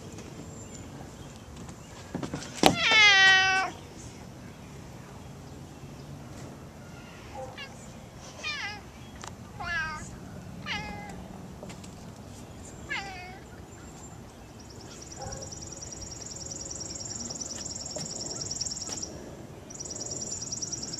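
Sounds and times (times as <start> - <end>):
cat meowing: 9.6 - 11.2, 12.9 - 13.4.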